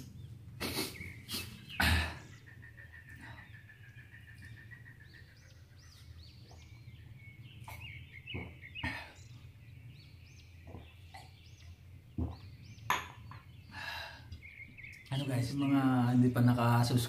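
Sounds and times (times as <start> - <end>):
steady low hum: 0.0 - 15.1
birds chirping faintly: 0.0 - 17.0.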